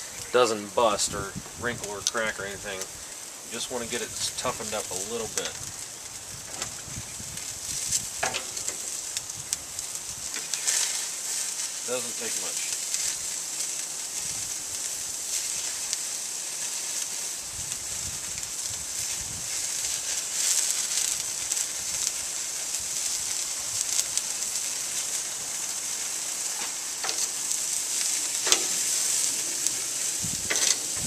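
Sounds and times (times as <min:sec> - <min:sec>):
sausages sizzling on grill: 0:00.0 - 0:31.0.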